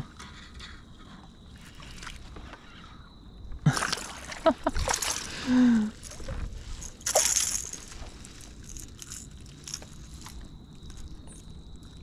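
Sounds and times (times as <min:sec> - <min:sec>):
fish splashing in water: 0:03.7 - 0:12.0.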